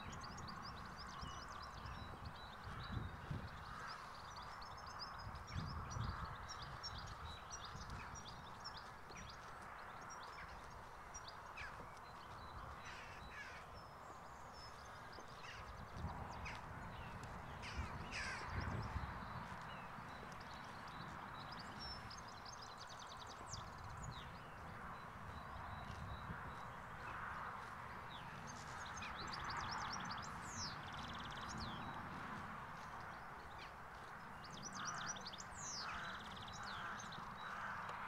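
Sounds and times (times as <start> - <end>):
birds chirping: 0.0 - 38.0
crows cawing: 12.8 - 13.7, 15.4 - 15.7, 17.6 - 18.6, 34.8 - 38.0.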